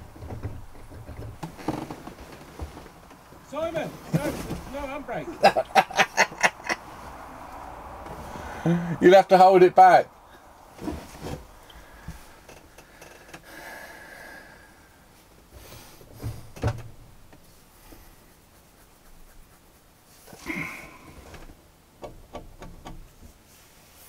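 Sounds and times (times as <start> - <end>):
knocks and rustles: 0.0 - 5.0, 10.7 - 13.5, 15.6 - 19.6, 20.2 - 23.7
scuffling noise: 1.5 - 5.0.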